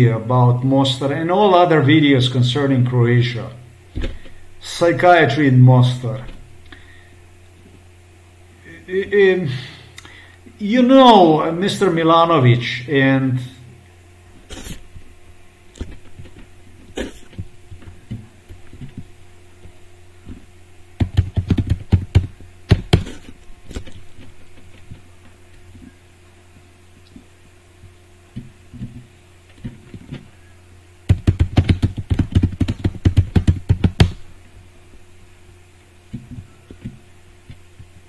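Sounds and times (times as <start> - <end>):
low steady hum: 0.0 - 38.0
computer keyboard typing: 21.0 - 22.9, 31.1 - 34.2.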